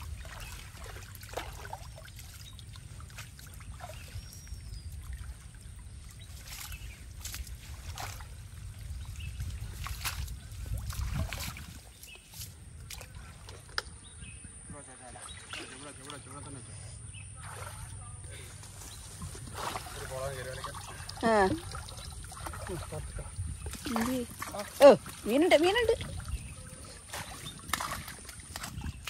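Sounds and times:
short sharp splashes: 0.0s - 13.7s, 15.2s - 16.6s, 17.3s - 18.0s, 19.4s - 29.0s
water splashing and trickling: 0.0s - 29.0s
water draining through mesh: 19.6s - 28.9s.

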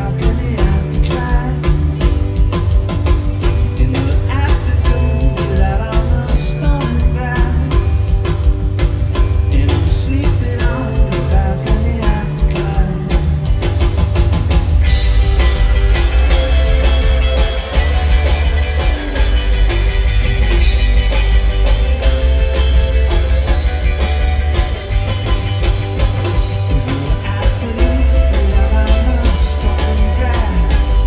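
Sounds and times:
person singing: 0.0s - 2.0s, 3.8s - 8.3s, 9.5s - 13.4s, 26.6s - 31.0s
electric guitar: 0.0s - 31.0s
indie rock band playing: 0.0s - 31.0s.

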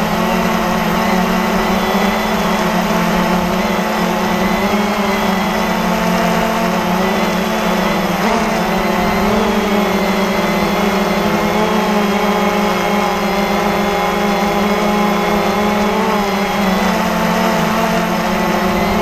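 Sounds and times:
quadcopter motors whirring: 0.0s - 19.0s.

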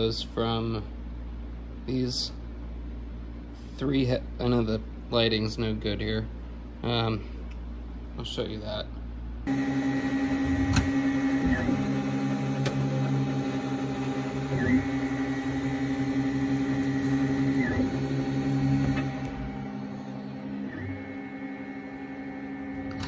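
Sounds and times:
stepper motors humming: 9.5s - 23.0s.

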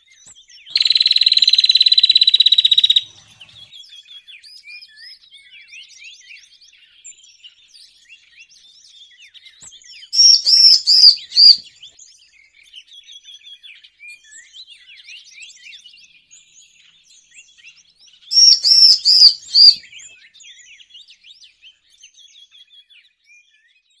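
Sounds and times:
thin high bird twittering: 0.7s - 3.7s, 10.2s - 11.6s, 18.3s - 19.9s
loud high bird notes: 10.2s - 11.6s, 18.4s - 19.8s.

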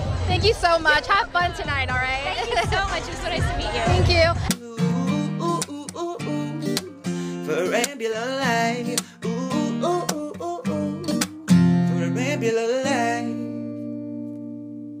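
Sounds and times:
person singing: 2.5s - 13.6s
strummed acoustic guitar: 2.6s - 15.0s.

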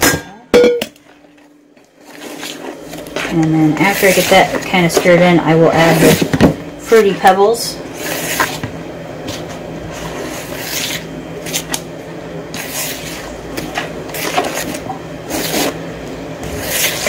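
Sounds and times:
batter stirred in plastic bowl: 2.0s - 6.4s, 12.5s - 15.8s, 16.4s - 17.0s.

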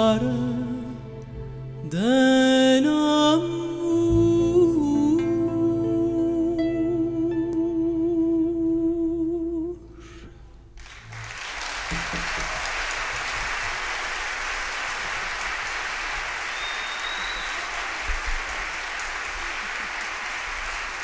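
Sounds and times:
woman singing with string orchestra: 0.0s - 10.3s
audience applauding: 10.8s - 21.0s
short whistle: 16.5s - 17.8s.

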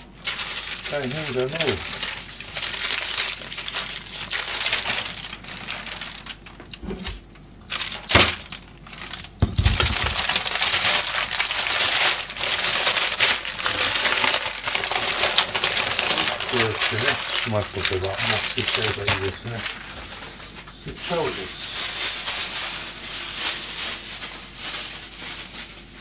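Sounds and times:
newspaper crumpling and rustling: 0.0s - 26.0s
sharp knocks: 9.4s - 10.2s.

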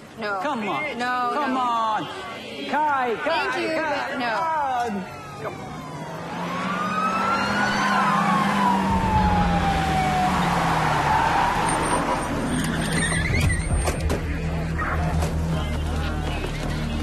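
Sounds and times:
police siren wailing: 4.3s - 13.1s
low rumble: 8.9s - 11.6s.

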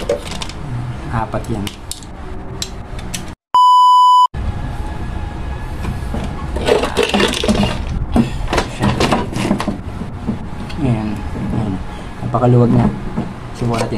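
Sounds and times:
fan parts clattering and knocking: 0.0s - 0.6s, 5.8s - 13.9s
loud electronic beep: 3.6s - 4.3s.

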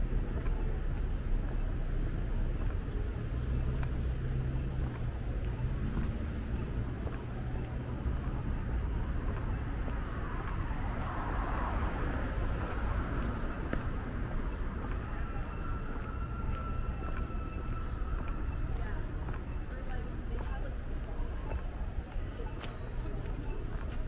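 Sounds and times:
vehicle engine hum: 0.0s - 22.2s
traffic rumble: 0.0s - 24.0s
vehicle passing by: 9.8s - 15.0s.

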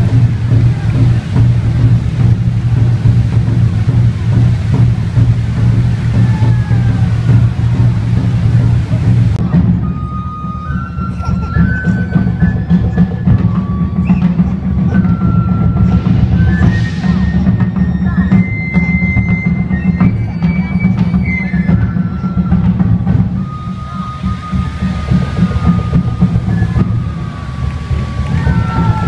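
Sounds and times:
fireworks hissing: 0.0s - 20.7s, 21.4s - 29.0s
drums fast rhythm: 0.0s - 29.0s
high held melody: 21.8s - 29.0s.

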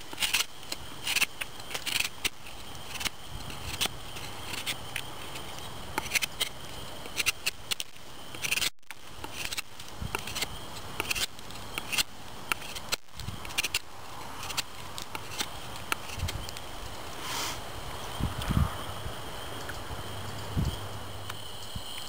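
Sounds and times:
knife scraping wood: 0.0s - 17.6s.

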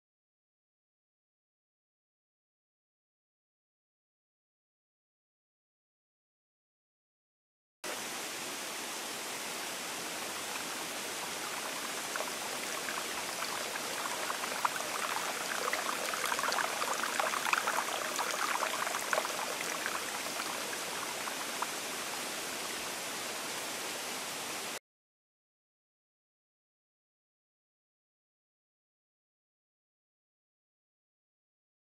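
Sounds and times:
water flowing: 7.9s - 24.8s
water drips and splashes: 9.9s - 24.6s.

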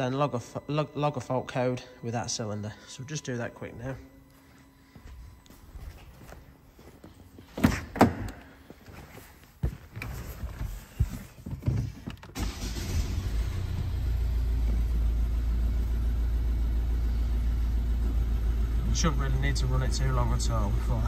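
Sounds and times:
diesel engine starting and idling: 12.4s - 21.0s.

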